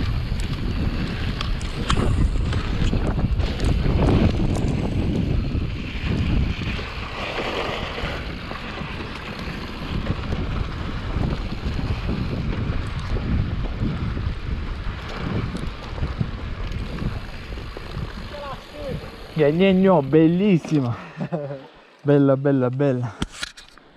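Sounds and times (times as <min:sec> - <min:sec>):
wind buffeting microphone: 0:00.0 - 0:21.1
tyres rumbling on dirt: 0:00.0 - 0:21.5.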